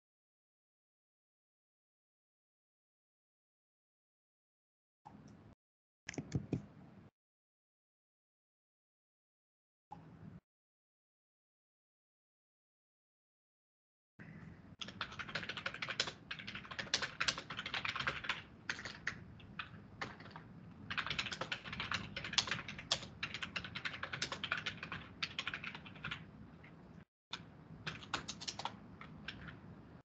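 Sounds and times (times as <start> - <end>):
typing on computer keyboard: 14.8 - 26.3, 27.4 - 29.6.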